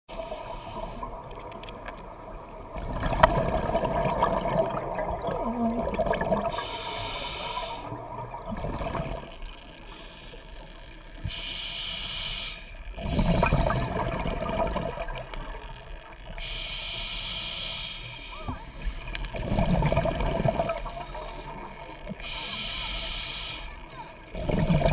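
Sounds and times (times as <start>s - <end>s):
exhaled bubbles rumbling: 0.9s - 6.7s, 7.9s - 9.8s, 12.9s - 16.3s, 18.6s - 22.2s, 23.9s - 24.9s
regulator hissing on inhalation: 6.5s - 7.9s, 11.3s - 12.8s, 16.4s - 18.4s, 20.8s - 23.7s.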